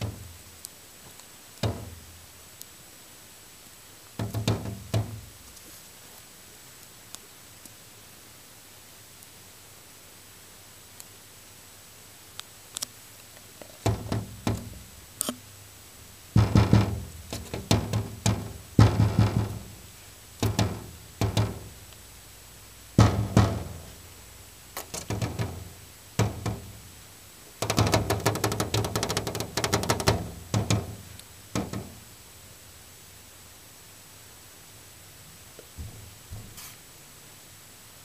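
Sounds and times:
bird knocking on window glass: 0:00.0 - 0:00.3, 0:01.6 - 0:02.1, 0:04.2 - 0:05.4, 0:13.8 - 0:14.9, 0:16.4 - 0:21.9, 0:23.0 - 0:24.1, 0:24.8 - 0:26.9, 0:27.6 - 0:32.1.

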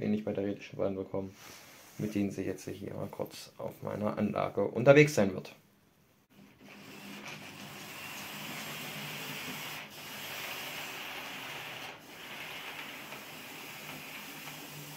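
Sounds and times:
model train wheels rolling: 0:10.2 - 0:14.9.

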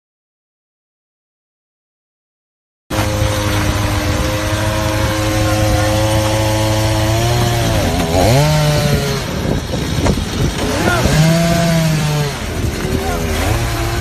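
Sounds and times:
chainsaw running: 0:02.9 - 0:14.0.

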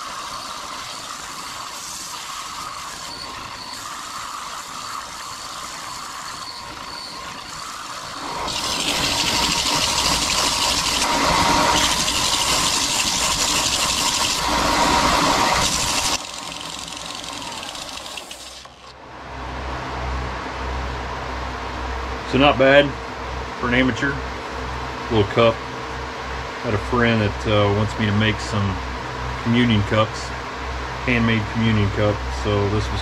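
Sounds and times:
wood rasping on sanding belt: 0:00.0 - 0:18.8
belt sander motor whining: 0:00.0 - 0:19.0.

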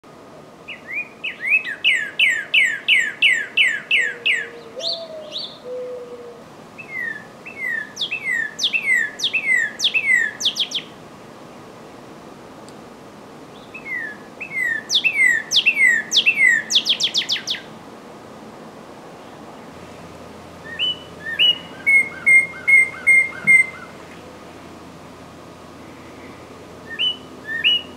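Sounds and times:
cardinal singing whistles: 0:00.7 - 0:05.8, 0:06.8 - 0:10.9, 0:13.8 - 0:17.7, 0:20.6 - 0:23.9, 0:26.8 - 0:27.9.

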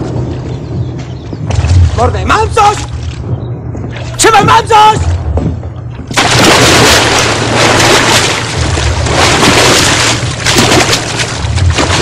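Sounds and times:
water splashing in a pond: 0:06.1 - 0:12.0.

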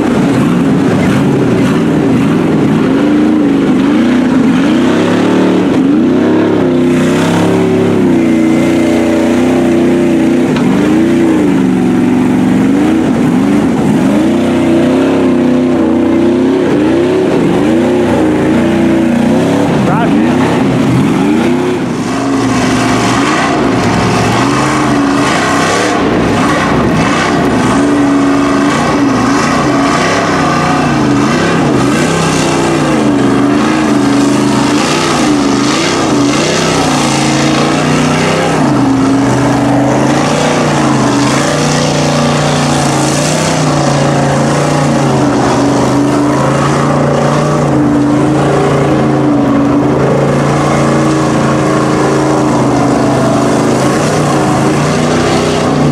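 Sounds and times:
truck engine revving under load: 0:00.0 - 0:55.9
water churning and splashing: 0:00.0 - 0:55.9.

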